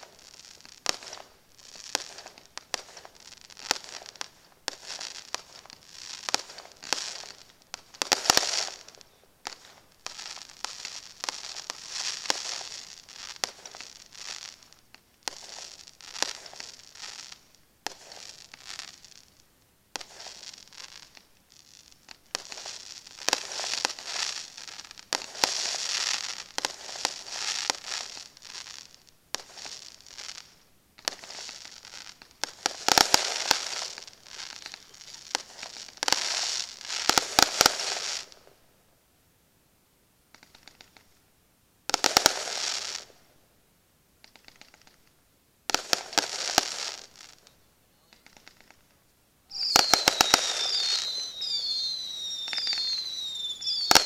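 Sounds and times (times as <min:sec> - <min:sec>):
fireworks crackling: 0:00.0 - 0:38.8, 0:40.3 - 0:43.5, 0:44.2 - 0:54.0
firework shell bursts: 0:48.2 - 0:48.8, 0:49.5 - 0:54.0.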